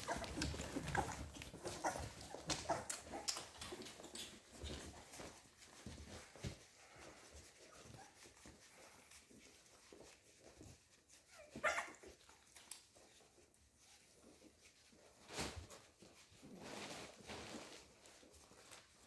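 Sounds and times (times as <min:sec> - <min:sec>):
puppies squeaking: 0:00.0 - 0:05.0, 0:11.3 - 0:12.1
puppy crying: 0:11.4 - 0:12.0.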